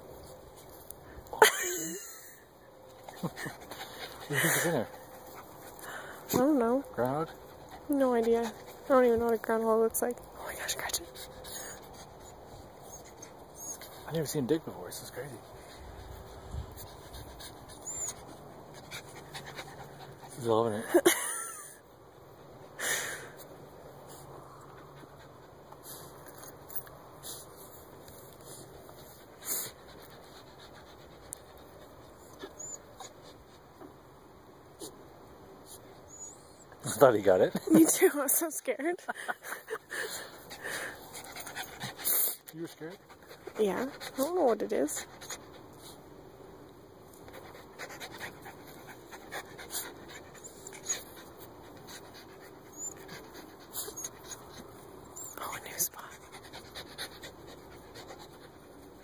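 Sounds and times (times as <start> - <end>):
dog paws scratching at dirt: 2.9 - 20.9, 23.4 - 33.9, 39.4 - 46.2, 47.0 - 59.0
dog scratching at dirt: 41.1 - 46.0.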